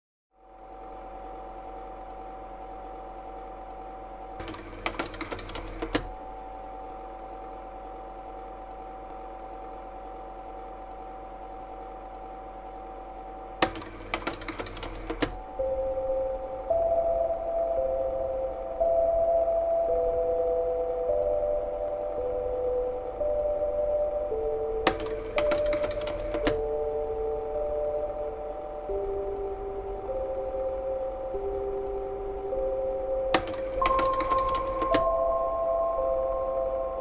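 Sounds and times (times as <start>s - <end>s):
rapid mechanical clicking: 4.4s - 6.2s, 13.5s - 15.5s, 24.9s - 26.6s
higher held tones: 15.4s - 25.1s, 26.6s - 37.0s
low drone of held tones: 15.5s - 25.0s, 26.5s - 33.4s, 34.9s - 37.0s.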